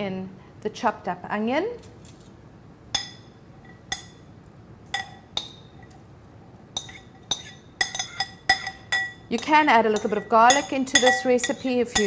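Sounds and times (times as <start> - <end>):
spoon clinking against ceramic bowl: 3.0 - 4.3, 4.9 - 6.0, 6.8 - 12.0.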